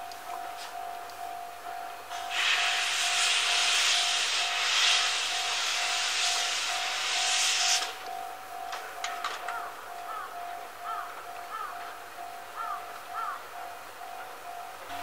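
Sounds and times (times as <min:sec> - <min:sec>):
steam hissing from locomotive: 0:02.1 - 0:08.1.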